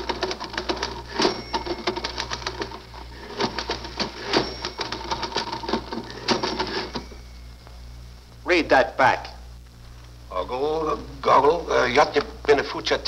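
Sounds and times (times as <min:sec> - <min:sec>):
typewriter keys clattering: 0:00.0 - 0:07.0
typewriter bell ring: 0:00.0 - 0:07.5.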